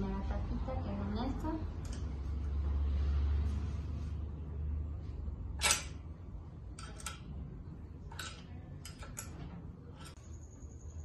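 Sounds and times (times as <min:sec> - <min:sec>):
wrench clicking on metal: 0:05.6 - 0:06.0, 0:06.8 - 0:07.2, 0:08.1 - 0:09.4.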